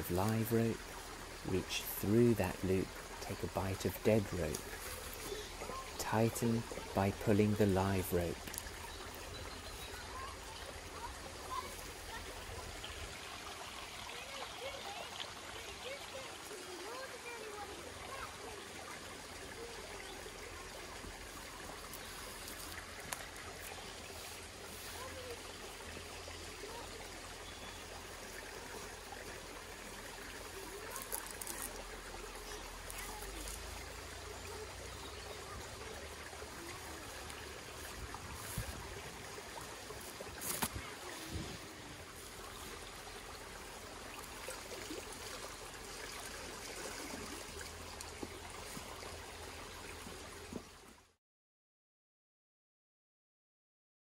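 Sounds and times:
stream trickling: 0.0s - 51.2s
rope ticks and knocks: 40.4s - 41.4s.

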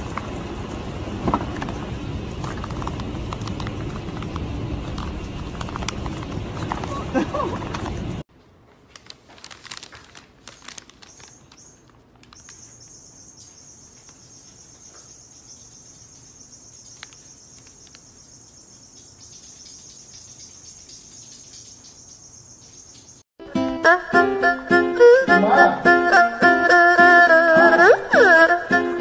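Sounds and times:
paper bag crinkling: 8.8s - 12.8s
high-pitched insect-like chirring: 11.0s - 23.2s.

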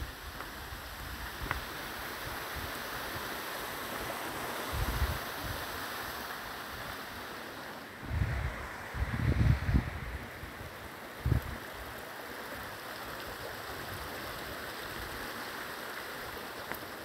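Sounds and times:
stream flowing over rocks: 0.0s - 17.0s
wind buffets on microphone: 4.6s - 5.8s, 8.0s - 11.9s.

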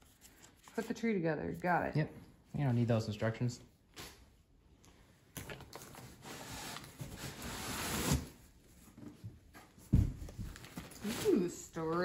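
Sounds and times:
cardboard and plastic rustling: 5.4s - 12.0s.

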